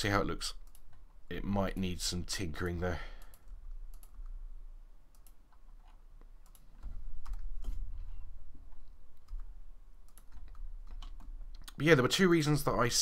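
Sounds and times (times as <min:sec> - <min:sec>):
keyboard keys clicking: 0:09.2 - 0:11.8.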